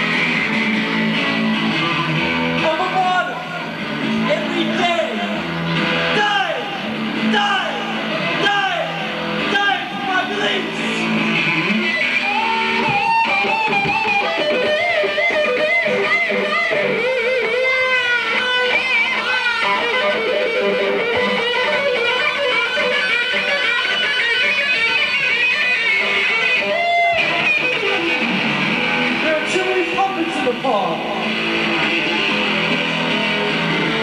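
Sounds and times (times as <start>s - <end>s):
electric guitar with vibrato: 0.0s - 34.0s.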